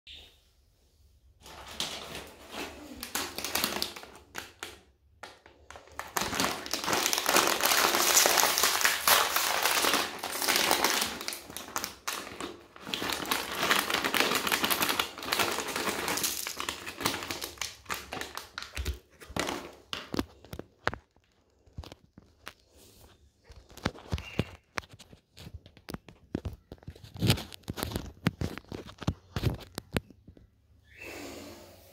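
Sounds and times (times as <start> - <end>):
plastic bag crinkling: 1.4 - 30.1.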